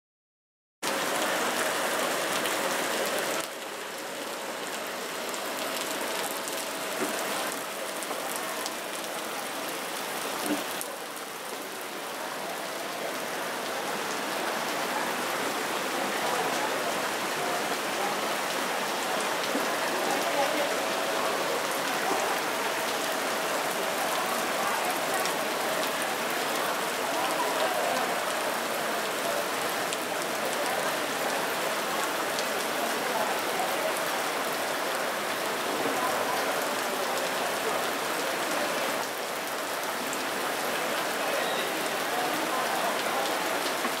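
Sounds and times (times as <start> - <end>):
stream splashing over rocks: 14.8 - 44.0.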